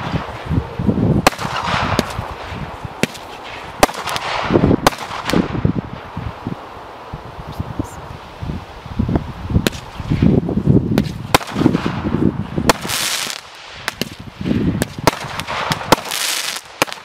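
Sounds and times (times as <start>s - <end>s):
low thuds of fireworks launching: 0.0s - 6.4s, 9.6s - 17.0s
dense firework crackling: 0.0s - 17.0s
sharp firework bangs: 1.2s - 5.8s, 9.6s - 10.3s, 10.9s - 17.0s.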